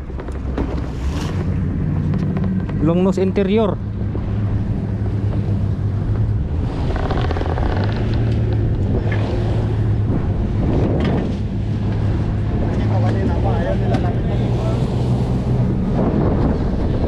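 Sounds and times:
boat engine humming: 0:00.0 - 0:17.0
wind buffeting microphone: 0:00.0 - 0:17.0
sea water against hull: 0:03.8 - 0:17.0.

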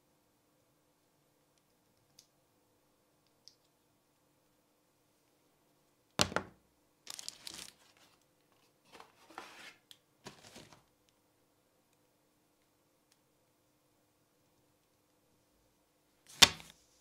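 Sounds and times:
cardboard and plastic rustling: 0:07.1 - 0:10.9.

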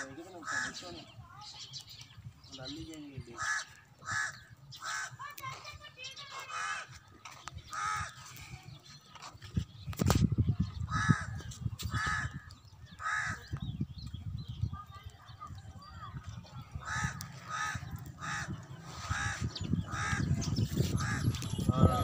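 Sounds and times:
crow cawing: 0:00.0 - 0:01.0, 0:03.3 - 0:05.4, 0:06.4 - 0:06.9, 0:13.0 - 0:13.4, 0:16.8 - 0:20.3.

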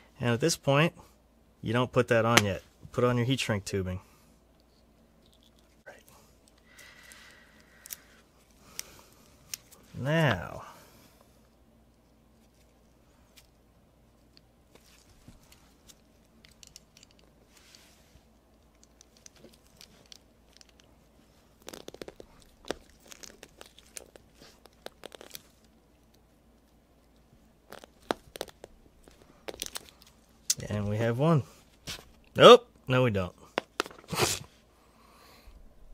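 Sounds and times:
handling of wire and tubing: 0:14.2 - 0:30.8.

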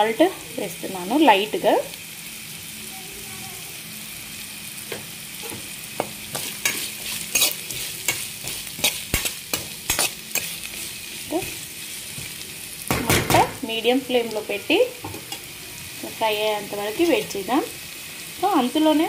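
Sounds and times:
onions sizzling in oil: 0:00.0 - 0:19.0
spatula scraping pan: 0:05.4 - 0:12.4.

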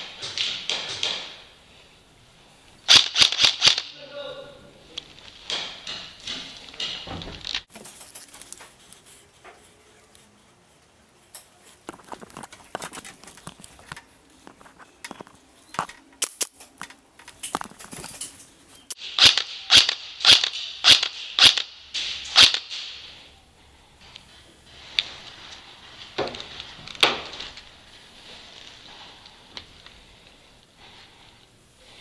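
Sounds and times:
airsoft gun shots: 0:02.9 - 0:04.0, 0:19.0 - 0:23.2.

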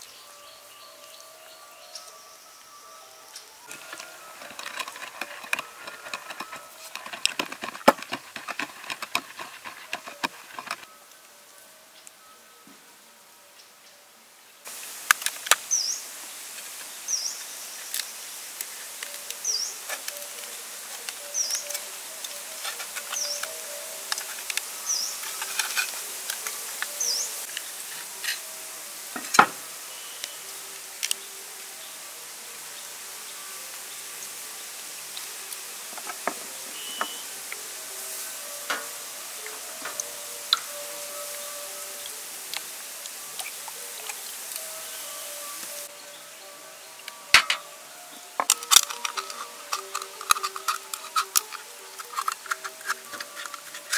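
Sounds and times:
insects humming: 0:00.0 - 0:53.9
knife scraping oyster shell: 0:03.7 - 0:10.9, 0:21.0 - 0:26.5, 0:48.4 - 0:53.9
wood knocking on wood: 0:04.7 - 0:10.8
bird chirping: 0:19.0 - 0:25.8, 0:36.1 - 0:37.3
oyster shell cracking: 0:48.4 - 0:53.9.

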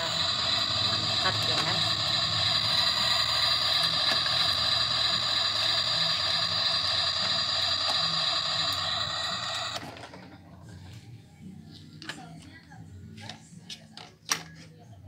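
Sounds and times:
toy stove electronic hiss: 0:00.0 - 0:10.1.

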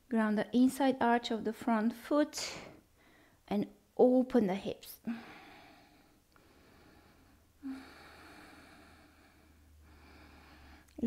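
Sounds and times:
woman breathing slowly: 0:02.5 - 0:03.5, 0:05.0 - 0:11.0.

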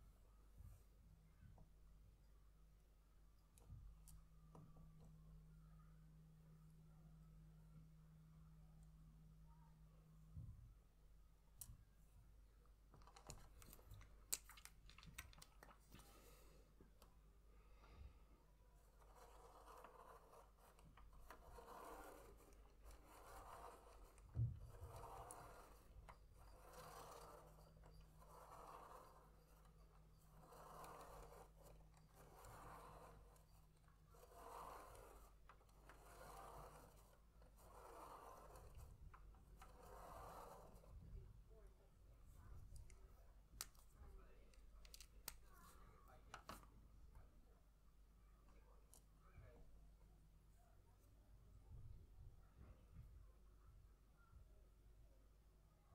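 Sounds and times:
plastic gears and pen clicking: 0:18.9 - 0:40.8, 0:44.5 - 0:45.6.

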